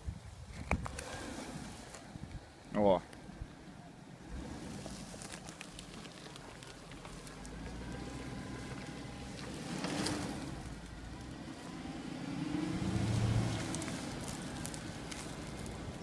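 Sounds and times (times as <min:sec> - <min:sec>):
suv engine running under load: 0:03.2 - 0:16.0.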